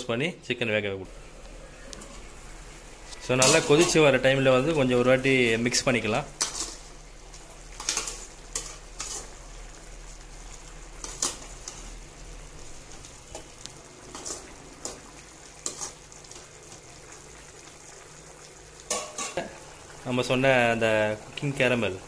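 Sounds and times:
liquid simmering: 0:01.1 - 0:22.0
metal spoon scraping pan: 0:06.3 - 0:06.9, 0:07.7 - 0:09.4, 0:13.3 - 0:15.0.

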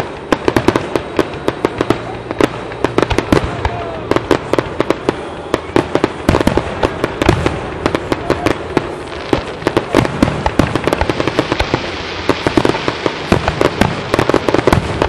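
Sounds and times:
fireworks bangs and crackles: 0:00.0 - 0:15.0.

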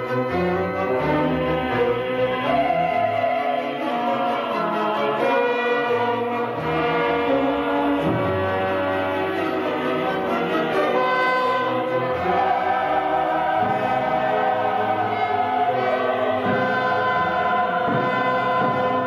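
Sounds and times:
choir singing held chords: 0:00.0 - 0:19.0.

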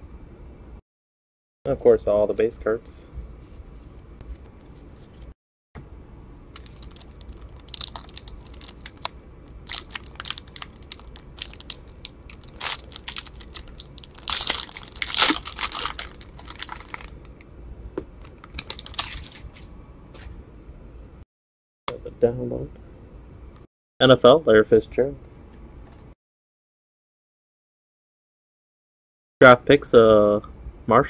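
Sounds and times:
foil card pack tearing open: 0:06.6 - 0:17.2, 0:18.3 - 0:19.4
hands handling trading cards: 0:06.6 - 0:17.2, 0:18.2 - 0:19.4
wrapper crinkling: 0:06.6 - 0:17.3, 0:18.2 - 0:19.5.

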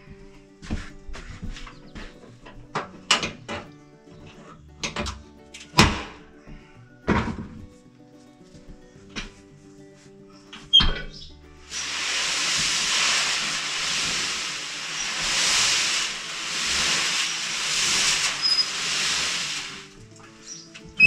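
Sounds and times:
seeds tumbling in barrel drum: 0:11.6 - 0:21.0.

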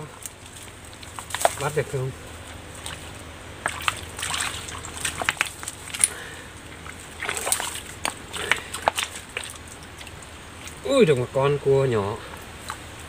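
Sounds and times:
hands splashing in water: 0:02.8 - 0:06.0, 0:06.9 - 0:10.8.

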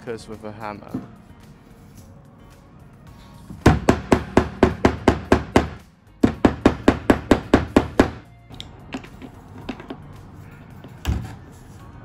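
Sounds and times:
hammer tapping plastic anchors: 0:03.6 - 0:08.2.

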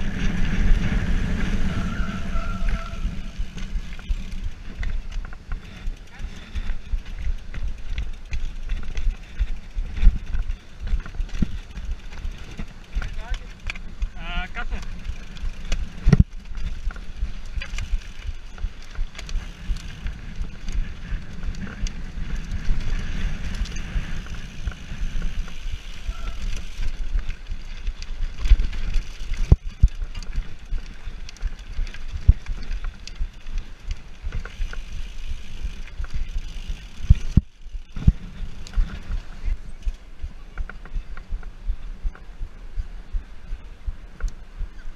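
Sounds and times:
mountain bike rattling on trail: 0:00.0 - 0:44.9
bike frame knocks and clatter: 0:14.8 - 0:25.8.

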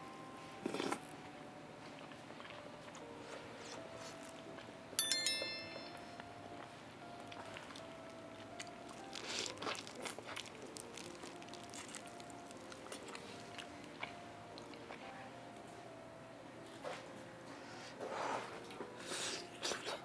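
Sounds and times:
soft background music: 0:00.0 - 0:20.0
biting and chewing: 0:01.8 - 0:04.7, 0:07.3 - 0:15.0
bright sparkling chime: 0:05.0 - 0:06.3.

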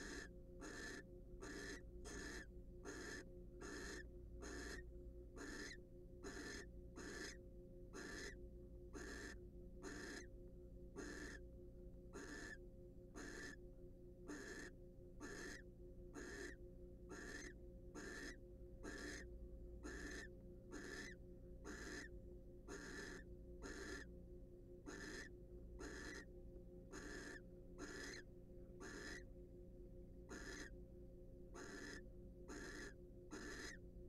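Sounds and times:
owl hissing snore calls: 0:00.0 - 0:04.8, 0:05.4 - 0:08.4, 0:09.0 - 0:10.3, 0:11.0 - 0:11.4, 0:12.1 - 0:12.6, 0:13.2 - 0:13.6, 0:14.3 - 0:15.6, 0:16.2 - 0:19.2, 0:19.8 - 0:22.1, 0:22.7 - 0:24.1, 0:24.9 - 0:26.3, 0:26.9 - 0:28.2, 0:28.8 - 0:29.2, 0:30.3 - 0:30.7, 0:31.6 - 0:33.8
faint steady hum: 0:00.0 - 0:34.0.

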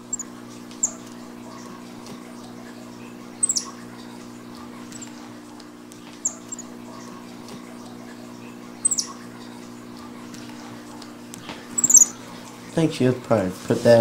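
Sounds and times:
steady low hum: 0:00.0 - 0:14.0
monkey high-pitched squeaks: 0:00.1 - 0:01.1, 0:03.4 - 0:03.8, 0:06.2 - 0:06.7, 0:08.8 - 0:09.2, 0:11.8 - 0:12.2.

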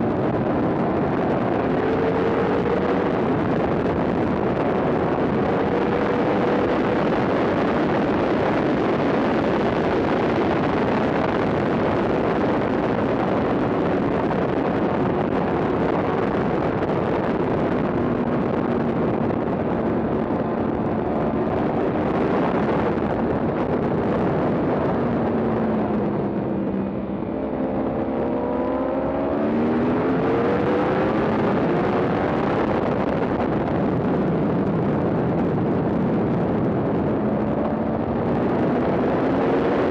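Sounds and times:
motorcycle engine at racing speed: 0:00.0 - 0:39.9
rush of wind: 0:00.0 - 0:39.9.

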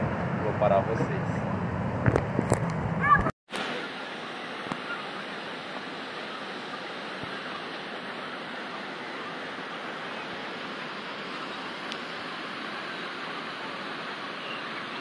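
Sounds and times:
rushing water: 0:03.5 - 0:15.0.

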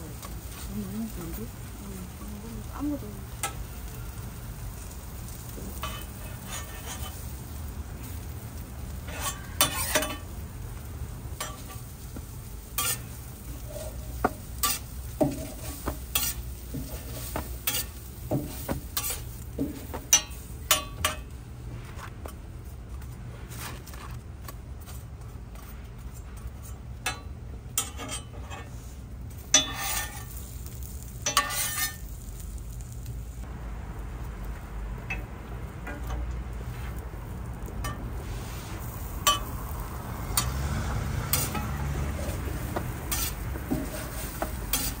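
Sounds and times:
food frying on a griddle: 0:00.0 - 0:45.0
metal spatula scraping hot plate: 0:03.4 - 0:04.9, 0:05.5 - 0:08.3, 0:08.9 - 0:10.3, 0:11.4 - 0:12.0, 0:12.7 - 0:21.3, 0:26.2 - 0:28.8, 0:29.4 - 0:32.2, 0:37.8 - 0:39.6, 0:40.3 - 0:45.0.

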